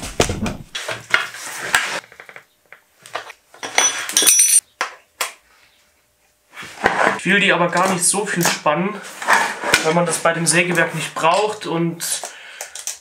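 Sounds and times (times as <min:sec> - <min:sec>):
metal hand tools clinking: 0:03.6 - 0:04.6.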